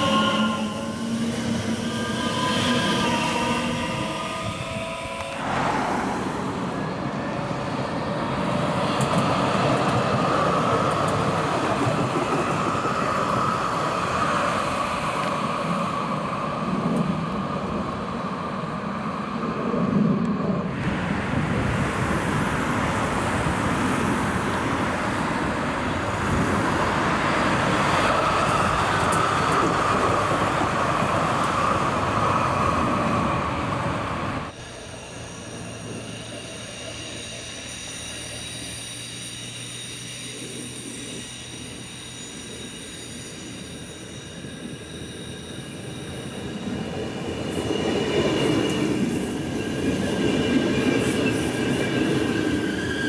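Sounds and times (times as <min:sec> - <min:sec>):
car traffic: 0:00.0 - 0:12.2
trams rolling on rails: 0:00.0 - 0:53.0.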